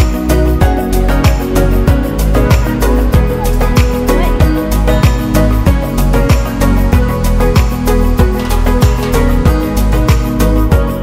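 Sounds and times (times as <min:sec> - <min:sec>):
upbeat background music: 0:00.0 - 0:11.0
sharp percussion hits: 0:07.6 - 0:10.2.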